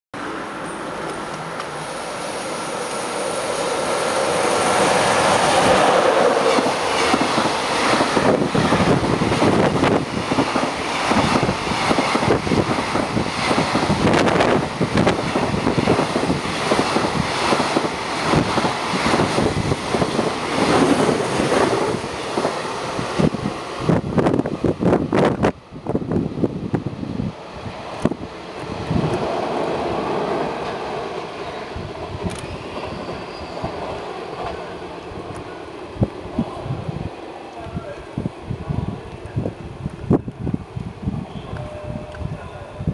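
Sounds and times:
train rushing past: 0.2 - 42.9
rapid train wheel clacks: 4.8 - 23.4.

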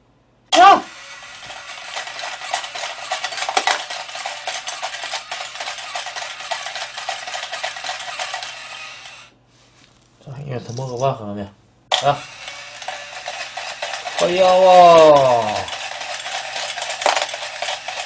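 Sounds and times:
small motor and gears whirring: 0.6 - 9.3, 11.9 - 18.0.

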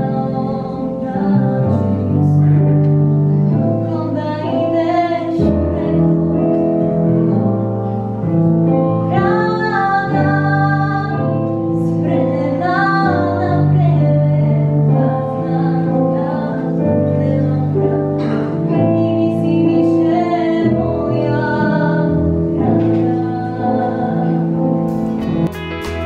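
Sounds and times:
girl singing slow melody: 0.0 - 25.2
electric keyboard chords: 20.1 - 26.0.

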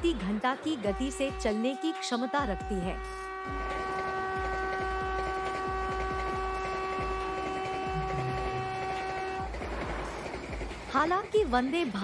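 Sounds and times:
train horn blast: 0.6 - 10.4
train rumble: 2.5 - 12.0.

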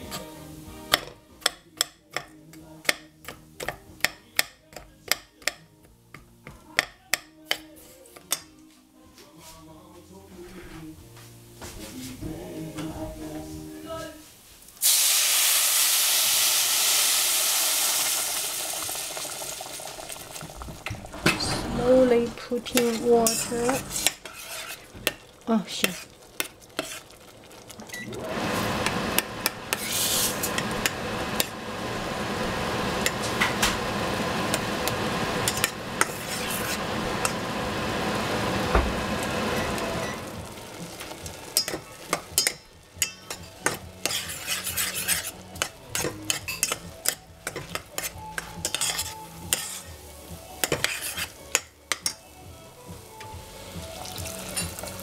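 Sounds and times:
water sizzling in hot pan: 14.6 - 52.2, 52.8 - 55.0
metal spoon scraping pot: 21.2 - 27.3, 29.1 - 31.5, 35.4 - 36.8, 41.6 - 49.9, 50.6 - 52.2.

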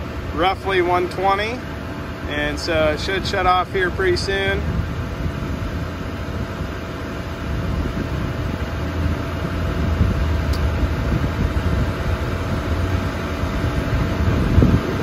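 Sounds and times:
charger cooling fans whirring: 0.0 - 15.0.

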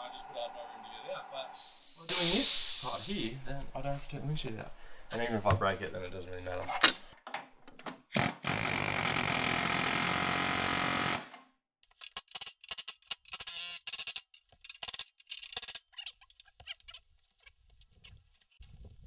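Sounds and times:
power tool on metal panels: 8.1 - 11.4.

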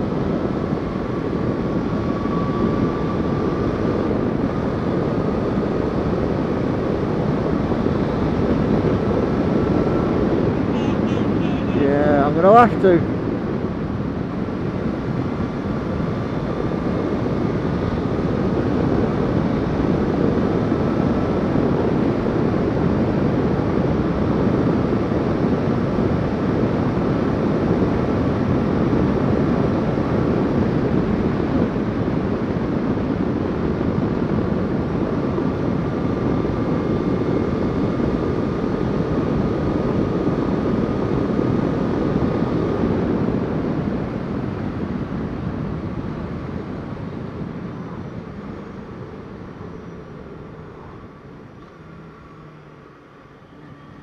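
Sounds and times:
faint high whine: 0.0 - 13.1, 46.4 - 54.0
motorcycle engine drone: 0.0 - 54.0
wind rushing over microphone: 0.0 - 54.0.

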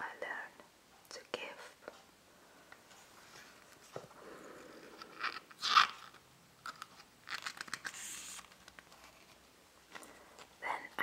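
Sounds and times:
book pages rustling: 2.9 - 10.6.

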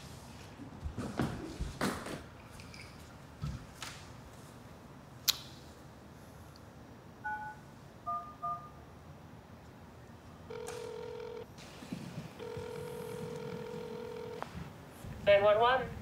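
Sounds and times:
phone keypad beeps: 7.2 - 8.8, 10.5 - 11.4, 12.4 - 14.4
phone ringing tone: 10.5 - 11.5, 12.4 - 14.6.

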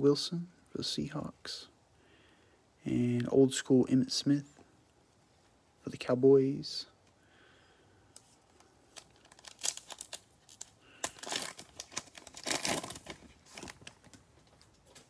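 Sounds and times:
foil pack crinkling and tearing: 8.9 - 15.0.

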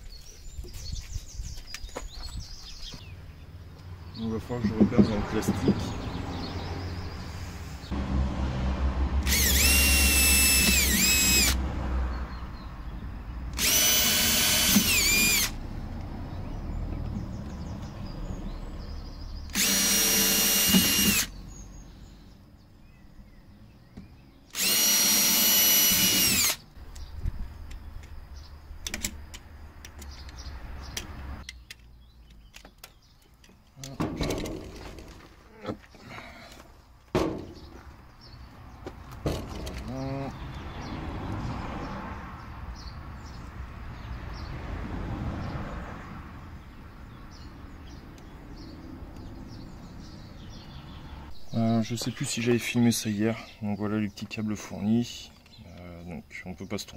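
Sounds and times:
electric drill whining: 9.2 - 11.6, 13.6 - 15.6, 19.5 - 21.3, 24.5 - 26.6.

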